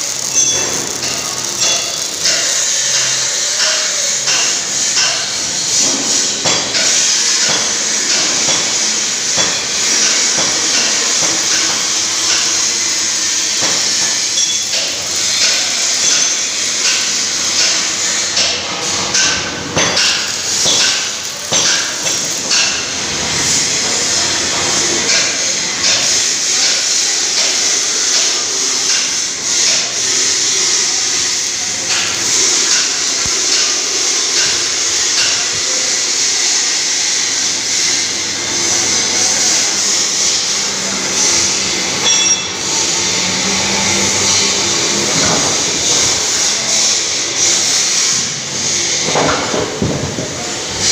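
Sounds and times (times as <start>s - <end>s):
hammer blows: 41.4s - 45.8s.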